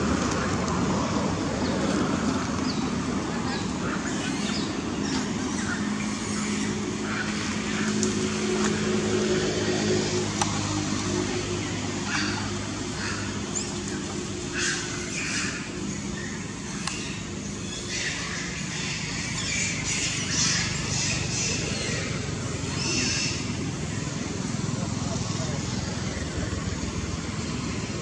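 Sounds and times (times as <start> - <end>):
steady low hum: 0.0 - 28.0
monkeys squealing: 17.0 - 23.7.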